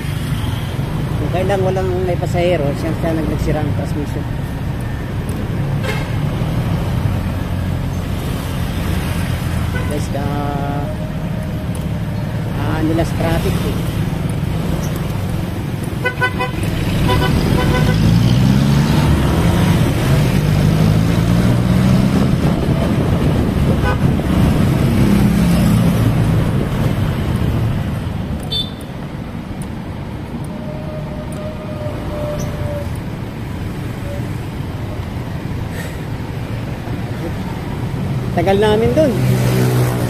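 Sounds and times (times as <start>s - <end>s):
traffic rumble: 0.0s - 40.0s
vehicle engine speeding up: 16.6s - 28.2s.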